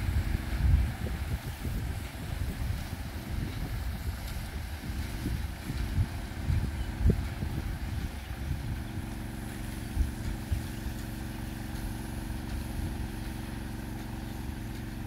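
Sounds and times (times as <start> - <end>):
wind thumps on microphone: 0.0 - 9.1, 9.8 - 11.0
motor humming: 0.0 - 15.0.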